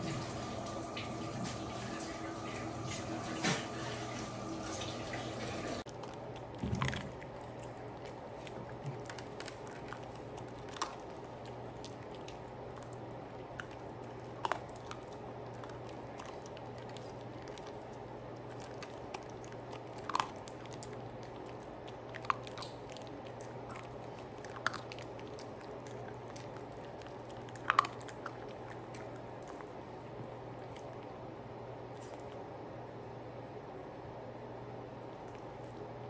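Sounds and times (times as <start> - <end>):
faint low hum: 0.0 - 36.0
dog crunching dry kibble: 5.9 - 29.8.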